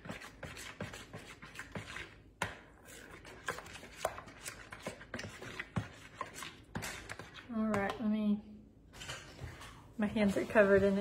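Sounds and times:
spoon tapping and scraping bowl: 0.0s - 8.1s.

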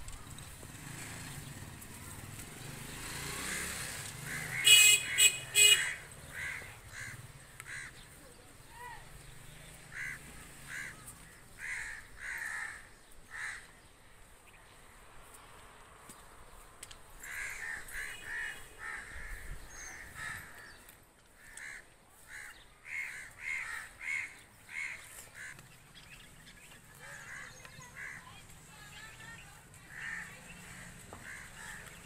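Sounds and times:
crows cawing: 3.4s - 8.2s, 9.9s - 13.9s, 17.2s - 25.8s, 26.9s - 28.4s, 29.8s - 32.0s.

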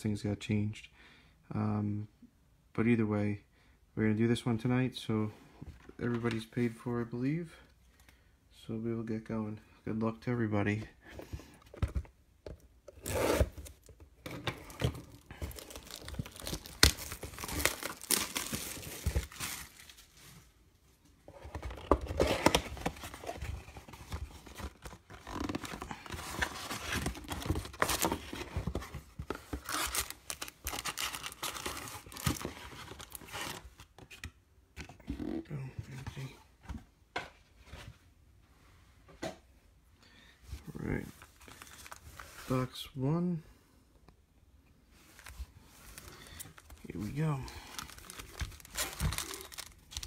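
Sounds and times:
cardboard box being opened: 12.9s - 20.0s, 21.3s - 33.8s, 47.7s - 50.0s
foil packs being handled: 14.8s - 20.5s, 22.0s - 33.6s, 45.2s - 50.0s
plastic wrap tearing and crinkling: 15.0s - 20.3s, 29.6s - 33.6s, 45.9s - 50.0s.

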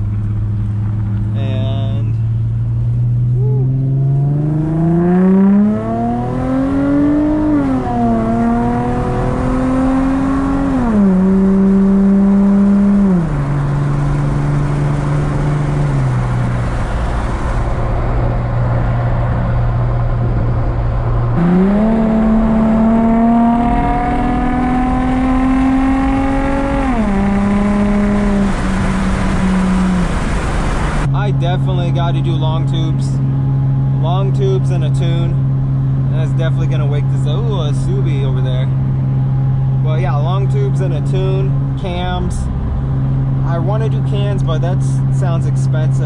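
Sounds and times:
car engine accelerating through gears: 2.2s - 31.1s.

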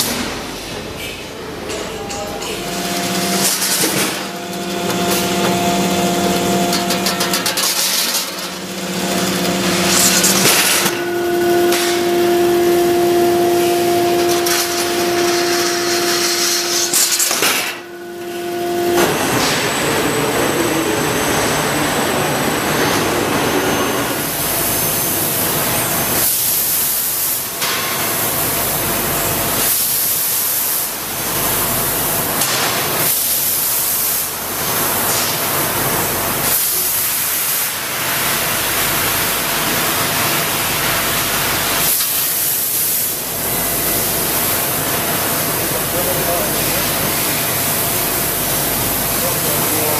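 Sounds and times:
machine whine: 1.6s - 27.6s.

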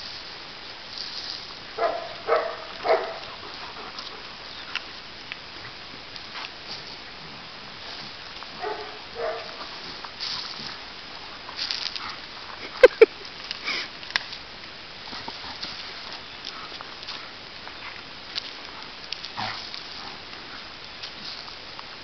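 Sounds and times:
paws scuffling on gravel: 0.0s - 22.0s
puppy barks: 1.8s - 3.3s, 8.6s - 9.6s
puppies growling: 15.1s - 20.8s.

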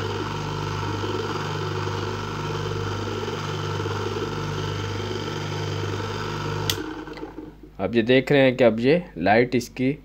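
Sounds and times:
washing machine motor hum: 0.0s - 7.8s.

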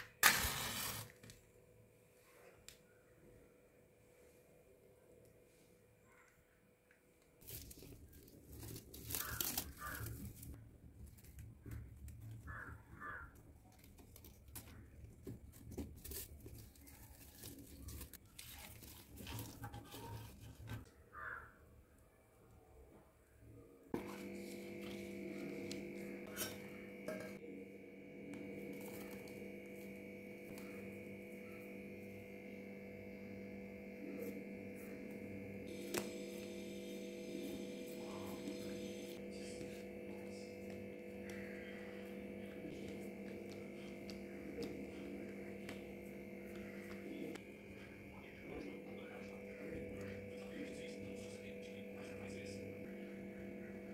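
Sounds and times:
hands rustling a leaf: 7.4s - 12.2s, 13.7s - 20.8s
steady electrical hum: 24.0s - 53.9s.

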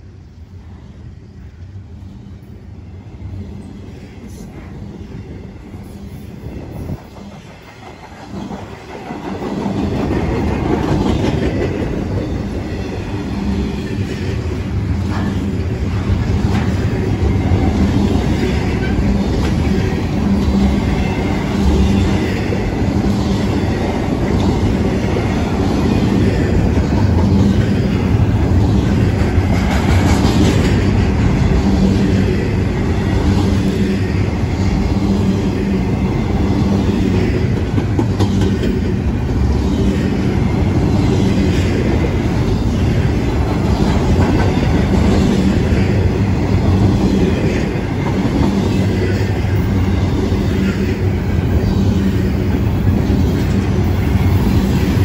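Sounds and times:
freight cars rumbling on rails: 1.7s - 55.0s.

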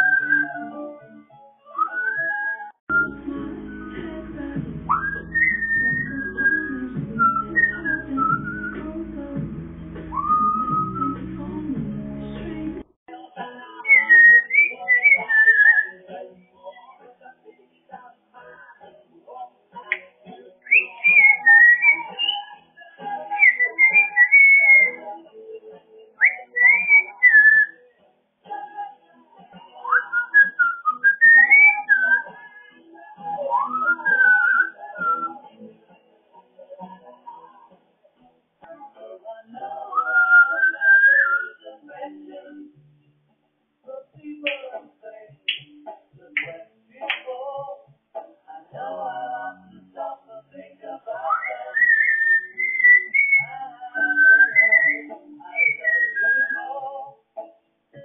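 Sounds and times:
parrot whistling: 4.9s - 8.8s, 10.1s - 11.2s, 13.9s - 16.0s, 20.7s - 22.5s, 23.4s - 25.0s, 26.2s - 27.7s, 29.9s - 32.3s, 33.5s - 35.4s, 40.0s - 41.6s, 51.2s - 56.6s.

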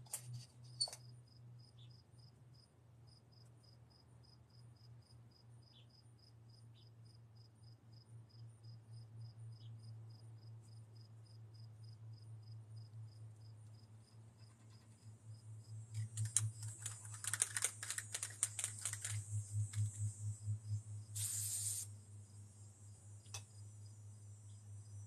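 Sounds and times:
crickets chirping: 0.8s - 25.0s
spray can ball rattling: 16.0s - 20.0s, 21.2s - 21.9s
spray hiss: 21.2s - 22.0s.

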